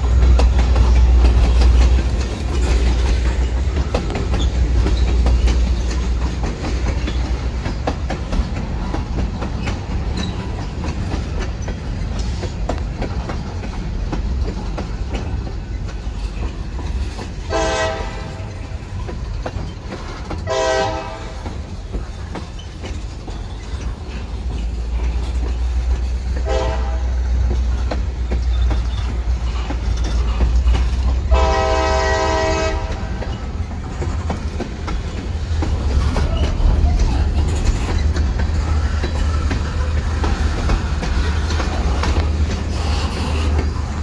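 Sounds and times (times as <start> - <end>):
freight train rumble and wheel clatter: 0.0 - 44.0
locomotive horn blasts: 17.5 - 18.5, 20.5 - 21.5, 26.4 - 27.2, 31.3 - 33.2.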